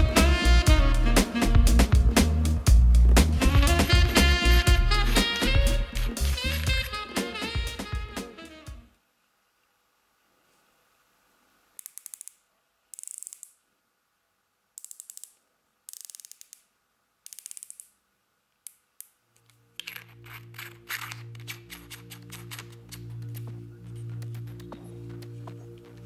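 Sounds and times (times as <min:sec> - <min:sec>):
background music: 0:00.0 - 0:08.9, 0:19.6 - 0:26.0.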